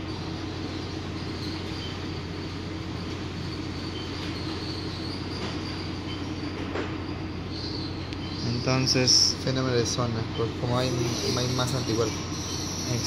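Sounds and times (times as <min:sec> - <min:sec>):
faint high whine and hiss: 0:00.0 - 0:13.0
steady machine hum: 0:00.0 - 0:13.0.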